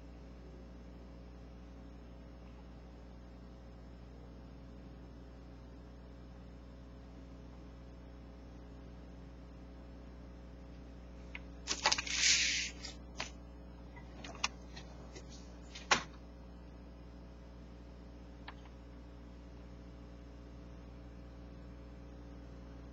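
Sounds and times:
steady low hum: 0:00.0 - 0:22.9
paper rustling and crackling: 0:11.7 - 0:13.3, 0:14.0 - 0:16.1.

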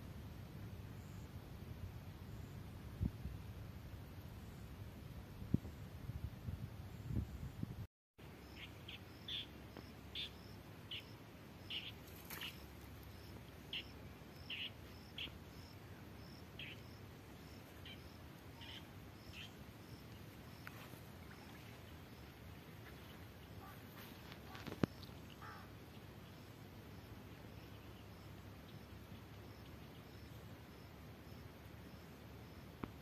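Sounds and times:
low background noise: 0:08.2 - 0:33.0
birds chirping: 0:08.5 - 0:26.4.

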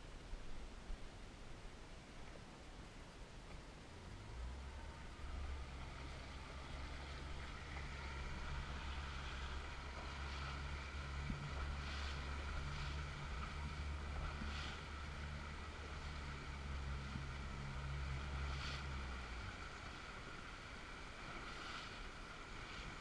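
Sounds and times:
boat engine running: 0:04.0 - 0:23.0
water splashing against hull: 0:05.1 - 0:23.0
water hissing past hull: 0:05.6 - 0:23.0.

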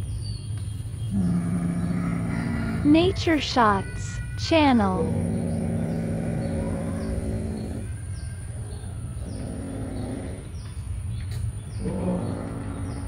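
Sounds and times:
small birds chirping: 0:00.0 - 0:13.0
cat growling low: 0:01.1 - 0:03.2, 0:04.7 - 0:10.6, 0:11.8 - 0:13.0.

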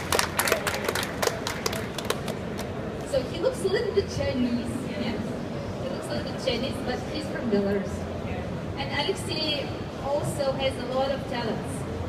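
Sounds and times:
small audience clapping: 0:00.0 - 0:02.8.

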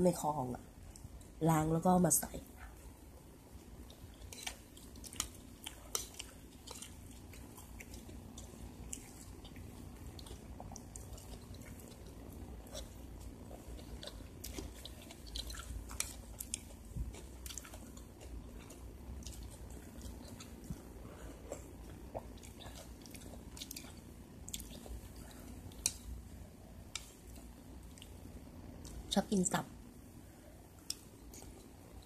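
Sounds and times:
person chewing: 0:03.5 - 0:29.0.

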